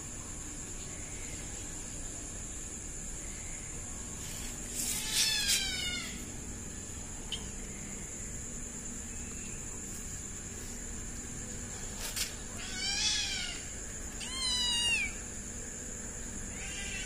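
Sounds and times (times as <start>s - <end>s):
kitten meowing: 5.0s - 6.2s, 12.6s - 15.2s.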